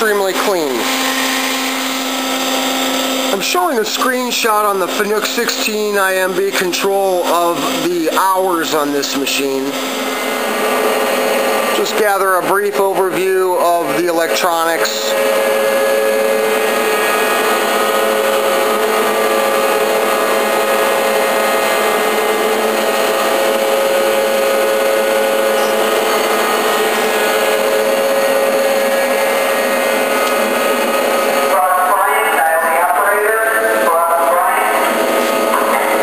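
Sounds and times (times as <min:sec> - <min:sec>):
machine hum and whine: 0:00.0 - 0:36.0.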